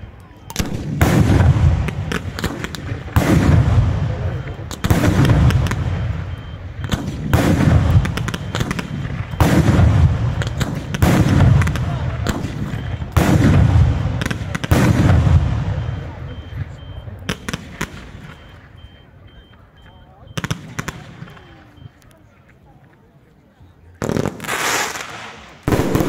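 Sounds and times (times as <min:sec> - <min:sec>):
fireworks booming and crackling: 0:00.0 - 0:19.0, 0:19.6 - 0:21.9, 0:24.0 - 0:26.0
small firework pops: 0:00.5 - 0:03.5.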